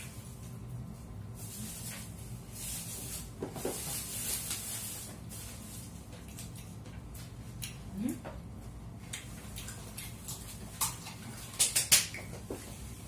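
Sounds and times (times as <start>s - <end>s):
person chewing: 6.1s - 7.9s, 9.0s - 12.3s.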